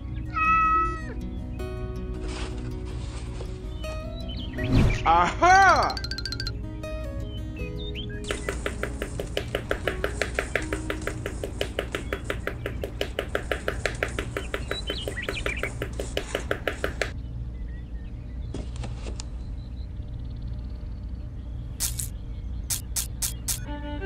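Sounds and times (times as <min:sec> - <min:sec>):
sharp tapping clicks: 0:08.2 - 0:17.2, 0:21.8 - 0:23.7.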